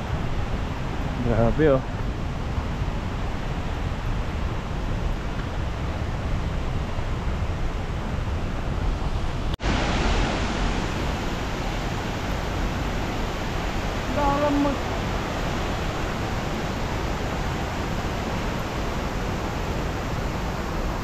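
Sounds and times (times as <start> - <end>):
waterfall rushing: 9.1 - 21.0.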